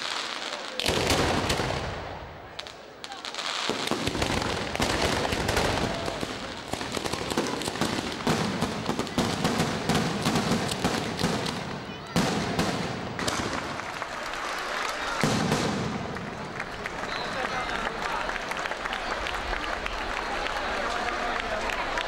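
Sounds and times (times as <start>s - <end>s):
firecrackers banging rapidly: 0.0s - 14.1s, 15.1s - 16.9s.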